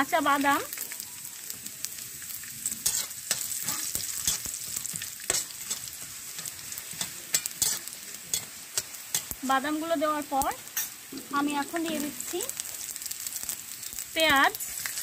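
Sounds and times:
peanuts sizzling in oil: 0.0 - 15.0
spoon scraping pan: 2.8 - 9.4.

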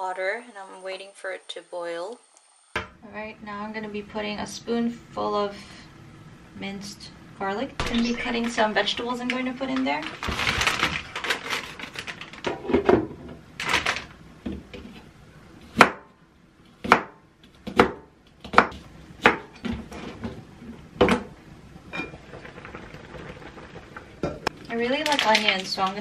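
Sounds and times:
plastic bag rustling: 7.9 - 12.8, 13.6 - 14.2, 22.3 - 26.0
knife chopping on cutting board: 15.7 - 16.1, 16.8 - 19.5.

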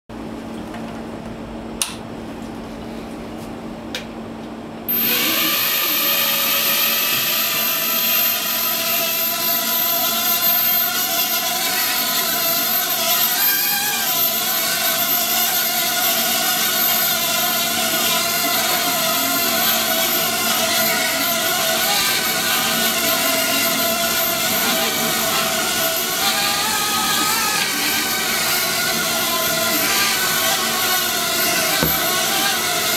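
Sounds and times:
mini drone motors whirring: 4.9 - 32.9.

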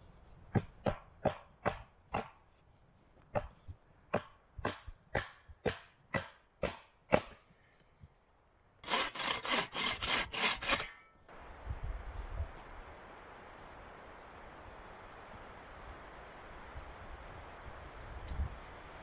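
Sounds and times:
hatchet chopping wood: 0.5 - 2.4, 4.1 - 7.4
pruning saw rasping through wood: 8.8 - 11.0.

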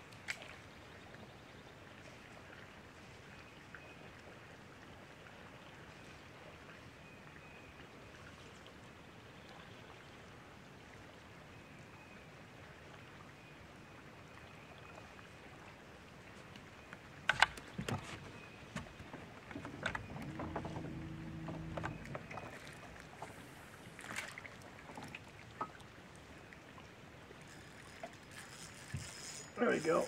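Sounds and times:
water lapping against boat hull: 16.3 - 30.0
knocks and clatters on boat deck: 17.3 - 23.3.

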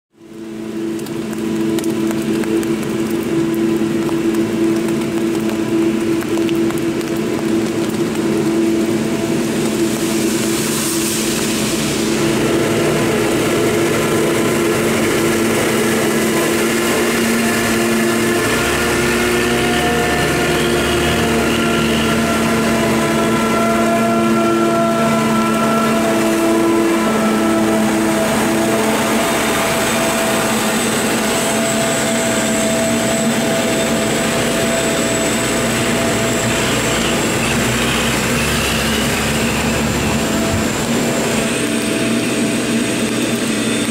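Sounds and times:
tractor running: 0.1 - 43.9
forage harvester droning: 0.2 - 43.9.

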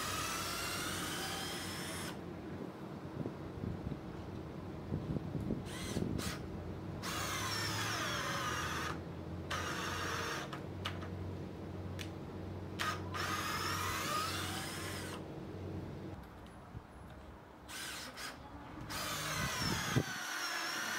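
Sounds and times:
cordless drill driving screw into wood: 0.0 - 2.2, 5.7 - 6.4, 7.0 - 11.0, 12.8 - 15.2, 17.7 - 20.9.

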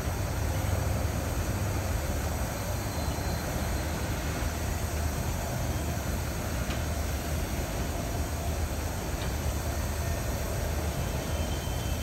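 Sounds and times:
freight train rumbling: 0.0 - 12.0.

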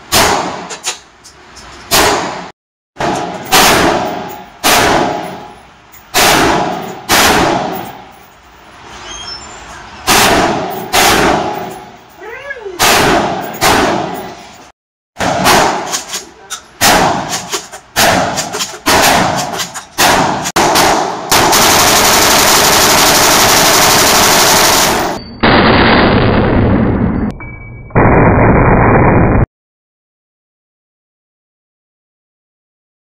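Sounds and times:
rifle shots with echo: 0.1 - 0.7, 1.9 - 5.4, 6.1 - 8.0, 10.1 - 11.8, 12.8 - 14.3, 15.2 - 16.1, 16.8 - 26.4
machine gun automatic fire: 16.9 - 27.1.

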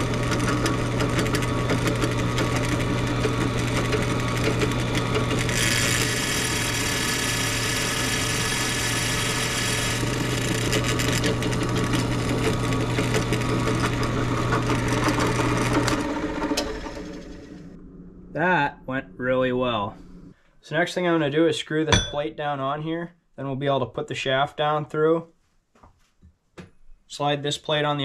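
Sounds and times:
electric drill drilling into metal: 0.0 - 17.6.

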